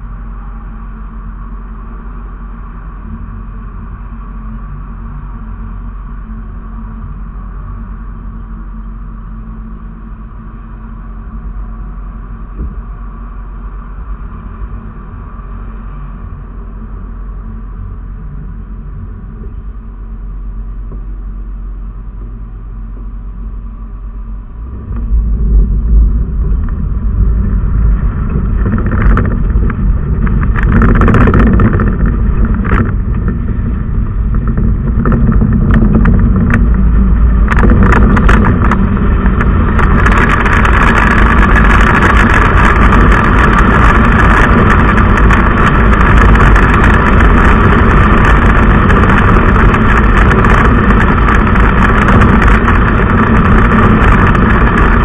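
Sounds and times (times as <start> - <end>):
car engine rumble: 0.0 - 55.0
tyre and wind noise: 0.0 - 55.0
knocks and rattles: 27.9 - 33.5, 34.2 - 55.0.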